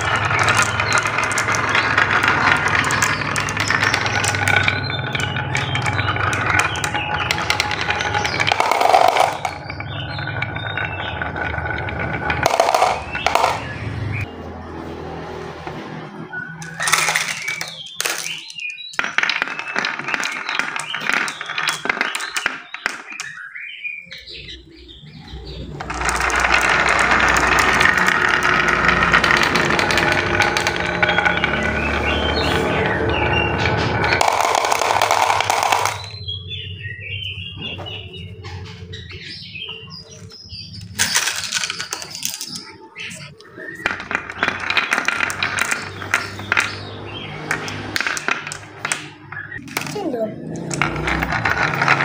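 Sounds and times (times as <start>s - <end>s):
marbles rattling in a hand: 0.0s - 13.7s, 16.6s - 23.3s, 25.7s - 36.2s, 40.8s - 42.7s, 43.8s - 46.8s, 47.4s - 52.0s
marbles rolling and clicking on wood: 0.0s - 14.3s, 15.5s - 52.0s
birds chirping: 0.0s - 52.0s.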